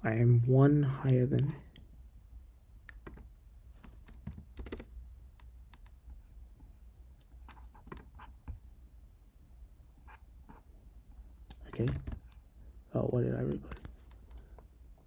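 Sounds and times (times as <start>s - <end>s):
faint low hum: 0.0s - 15.0s
keyboard typing: 2.9s - 6.0s, 11.5s - 12.4s.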